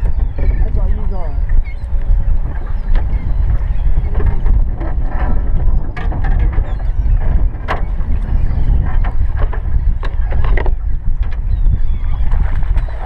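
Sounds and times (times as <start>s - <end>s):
wind and water rumble: 0.0s - 13.0s.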